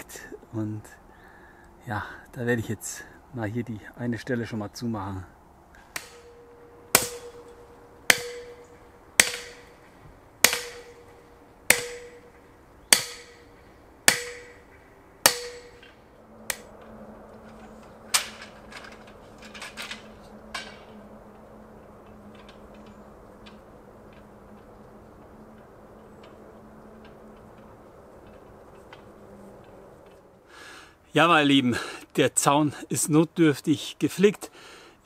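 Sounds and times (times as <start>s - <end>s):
faint steady hum: 0.0s - 35.0s
sledgehammer hitting wooden post: 5.9s - 13.5s, 14.1s - 16.7s.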